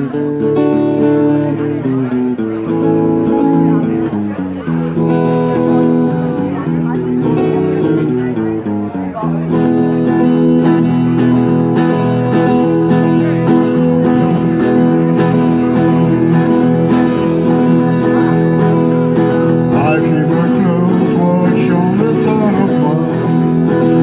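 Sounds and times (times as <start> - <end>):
acoustic guitars strummed: 0.0 - 24.0
man singing: 19.7 - 24.0.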